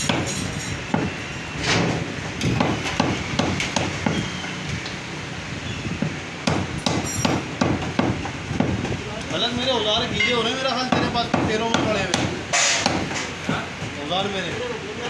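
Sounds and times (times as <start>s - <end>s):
cleaver chopping on wooden block: 0.0s - 1.2s, 2.4s - 4.2s, 6.0s - 8.9s, 10.9s - 13.6s.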